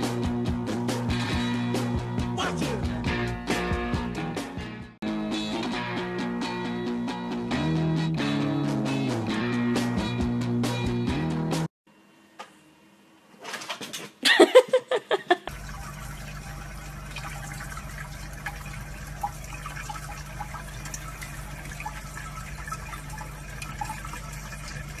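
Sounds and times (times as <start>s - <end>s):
water running from a tap: 15.5s - 25.0s.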